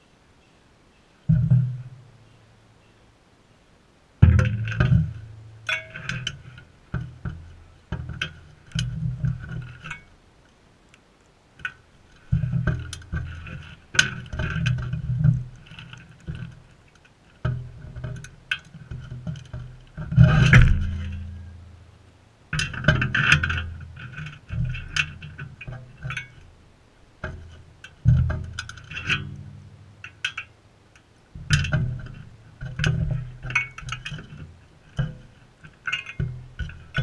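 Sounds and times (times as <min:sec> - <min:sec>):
low thumps: 0:04.2 - 0:09.9, 0:17.4 - 0:21.9
beaks tapping metal dish: 0:04.2 - 0:10.1, 0:27.2 - 0:37.0.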